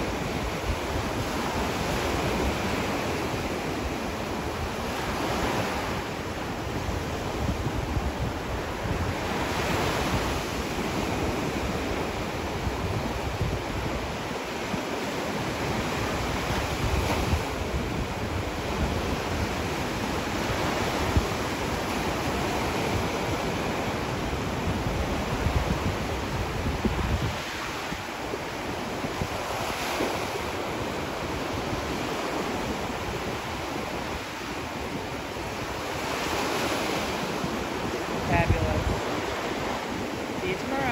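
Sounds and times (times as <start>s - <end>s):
waves washing up a beach: 0.0s - 40.9s
wind rumbling on microphone: 0.0s - 40.9s.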